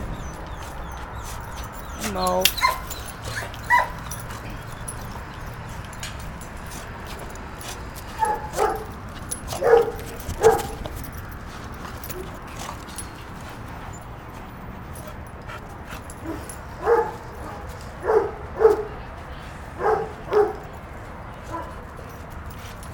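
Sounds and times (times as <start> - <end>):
puppies barking: 0.0 - 6.0, 8.1 - 13.2, 16.0 - 19.0, 19.8 - 20.7.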